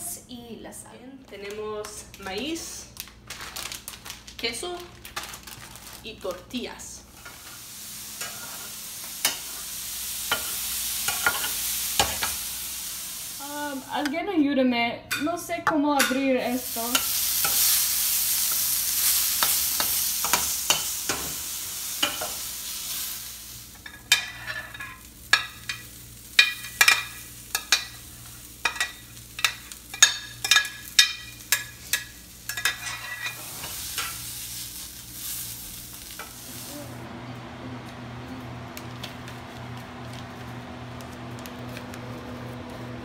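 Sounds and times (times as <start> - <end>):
vegetables sizzling in a frying pan: 2.0 - 14.3, 16.0 - 43.0.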